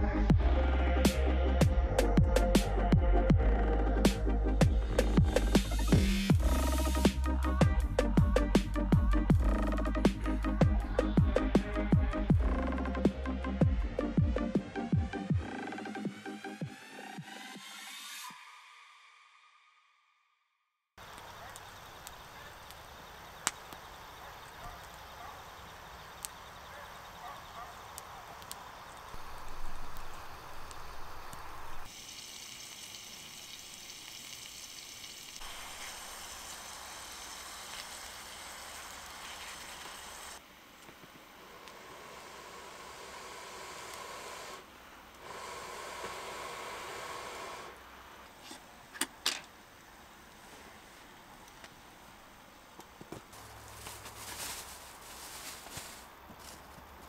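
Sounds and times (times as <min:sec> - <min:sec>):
wood fire crackling: 0:04.0 - 0:14.5, 0:21.0 - 0:48.6, 0:50.0 - 0:57.0
meat sizzling in a frying pan: 0:29.2 - 0:40.3.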